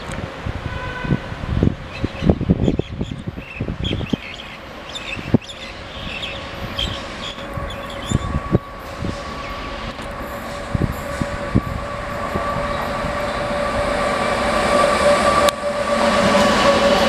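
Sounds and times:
electric locomotive whine: 0.0s - 17.0s
birds chirping: 1.9s - 8.5s.

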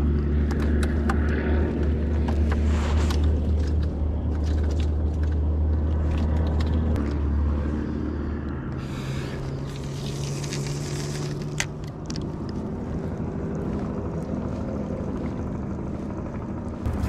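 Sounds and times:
engine droning: 0.0s - 17.0s
fishing rod clicking on rocks: 9.7s - 12.6s.

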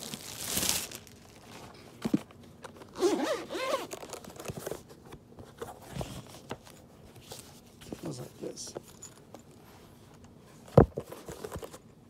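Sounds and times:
plastic bag crinkling: 0.0s - 1.8s.

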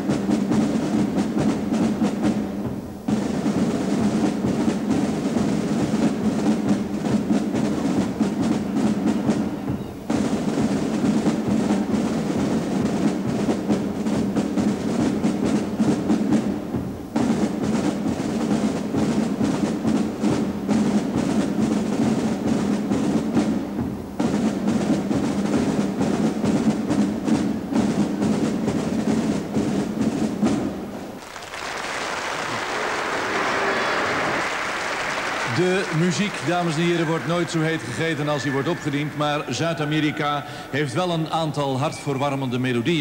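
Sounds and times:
drum and brass marching band: 0.0s - 43.0s
marching drums: 0.0s - 43.0s
applause: 31.2s - 40.6s.

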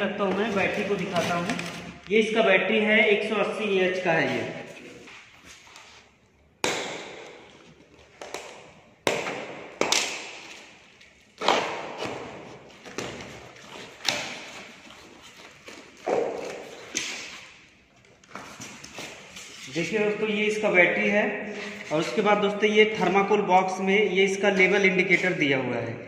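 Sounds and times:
cardboard scraping: 0.3s - 2.0s.

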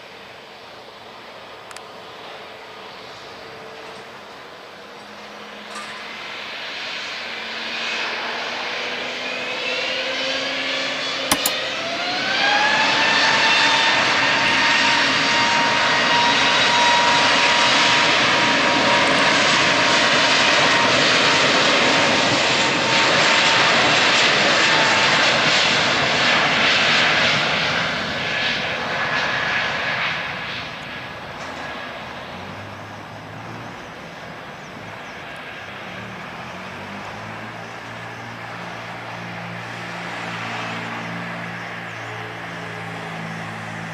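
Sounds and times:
sharp click: 11.3s - 11.6s.

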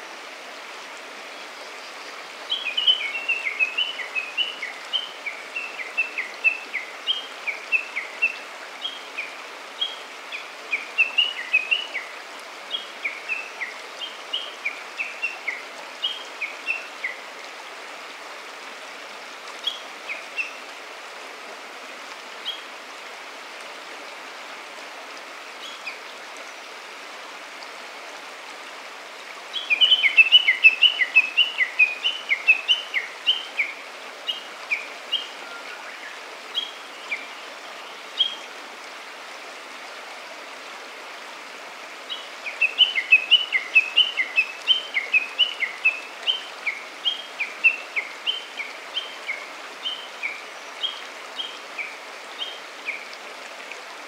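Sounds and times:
stream flowing: 0.0s - 54.0s
songbirds chirping: 29.1s - 39.0s.

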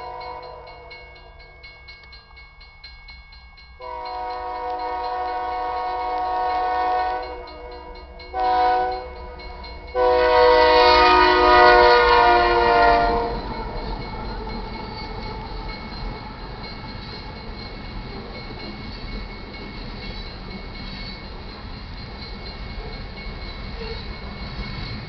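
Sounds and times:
locomotive air horn blasts: 0.0s - 0.7s, 3.8s - 9.4s, 10.0s - 13.6s
train cars rumbling by: 3.8s - 25.0s.

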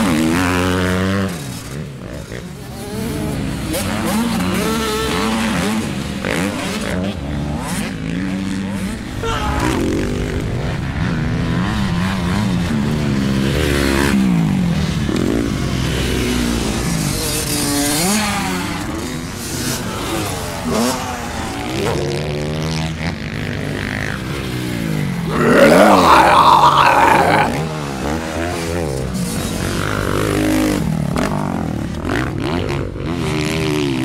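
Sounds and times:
person imitating engine revving: 9.1s - 10.0s, 25.3s - 27.7s.

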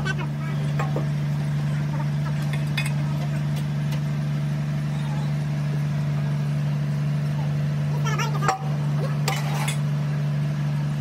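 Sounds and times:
low machine drone: 0.0s - 11.0s.

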